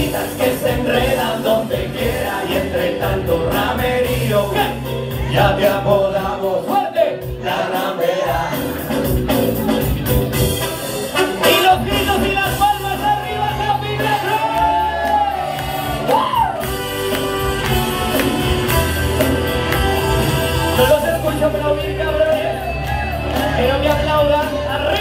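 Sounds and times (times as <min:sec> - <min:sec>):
wordless vocal: 0:00.0 - 0:09.0
pop music over sound system: 0:00.0 - 0:25.0
audience shouting: 0:13.5 - 0:21.1.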